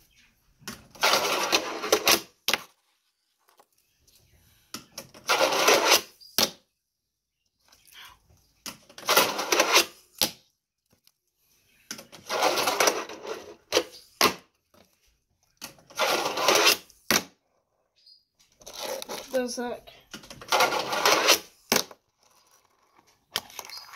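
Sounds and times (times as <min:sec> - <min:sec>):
fingerboard wheels rolling: 0:00.7 - 0:03.8, 0:05.0 - 0:06.3, 0:08.7 - 0:10.0, 0:11.9 - 0:15.0, 0:15.6 - 0:17.7, 0:18.4 - 0:19.3, 0:20.2 - 0:23.9.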